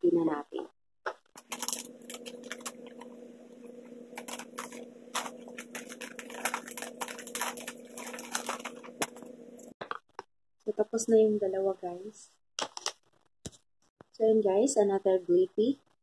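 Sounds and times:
low hum: 0:01.4 - 0:09.7
wrapping paper crinkling: 0:01.4 - 0:09.7.

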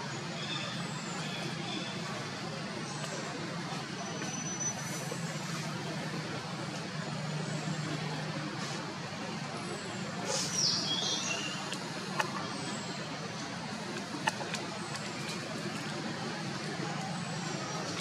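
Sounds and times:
distant traffic hum: 0:00.0 - 0:18.0.

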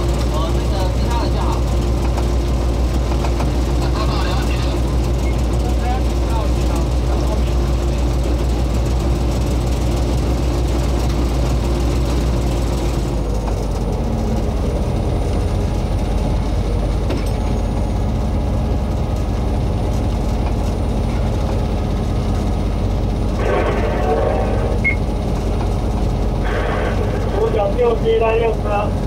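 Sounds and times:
locomotive diesel engine droning: 0:00.0 - 0:29.0.

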